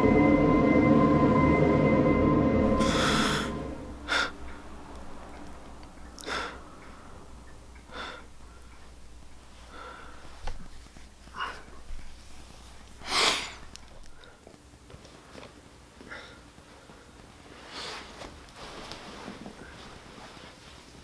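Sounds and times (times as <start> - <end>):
music with held tones: 0.0 - 4.0
man breathing hard: 2.7 - 4.6, 6.2 - 6.9, 7.8 - 8.9, 9.6 - 10.5.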